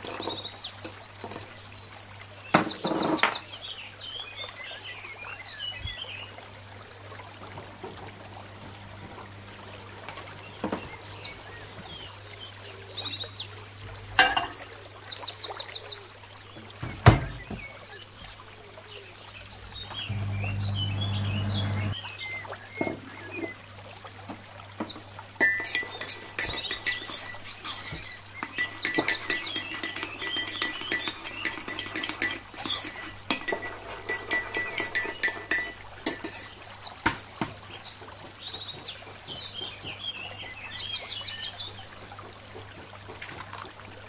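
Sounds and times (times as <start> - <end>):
small birds chirping: 9.0 - 23.6, 24.4 - 33.1
dishes knocking and clicking: 14.2 - 14.6, 28.4 - 36.5
steady low hum: 19.7 - 22.0.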